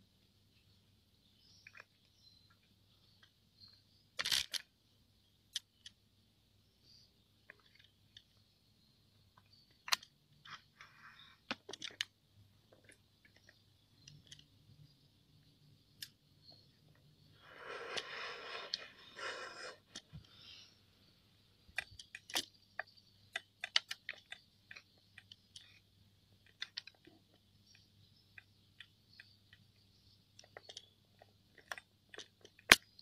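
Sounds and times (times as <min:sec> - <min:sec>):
crickets chirring: 0:06.8 - 0:33.0.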